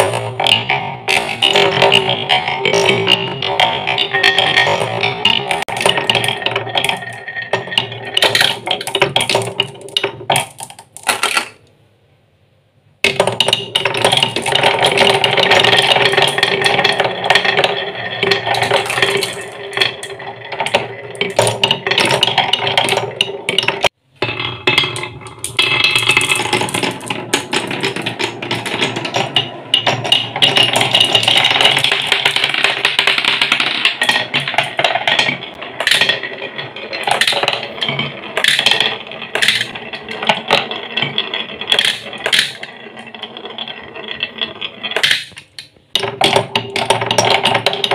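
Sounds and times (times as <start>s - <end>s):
marbles clicking and colliding: 0.0s - 11.7s, 13.0s - 47.9s
marbles rolling on wooden tracks: 0.0s - 11.7s, 13.0s - 47.9s.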